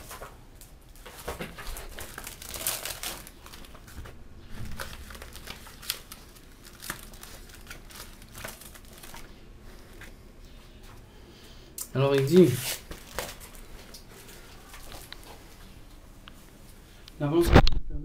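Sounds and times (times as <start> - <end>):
paper pages rustling: 0.0 - 10.2, 12.1 - 15.8.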